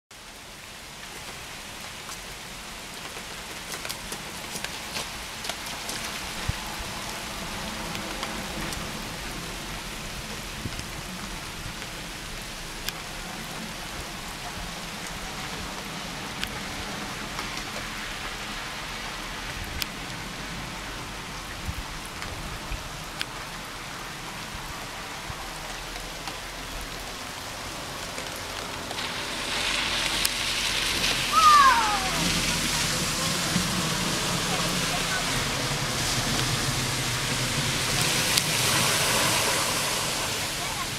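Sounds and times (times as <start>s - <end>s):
steady rain hiss: 0.1s - 40.9s.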